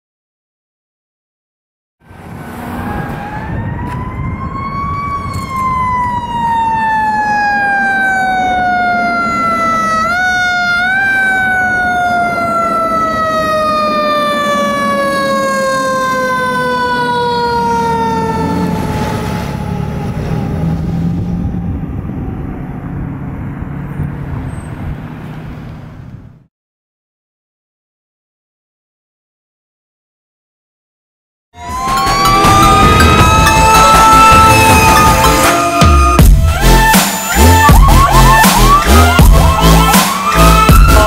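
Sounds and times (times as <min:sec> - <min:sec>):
fire engine siren: 0:02.0 - 0:23.9, 0:31.6 - 0:41.0
truck engine rumbling: 0:02.0 - 0:26.5, 0:31.6 - 0:41.0.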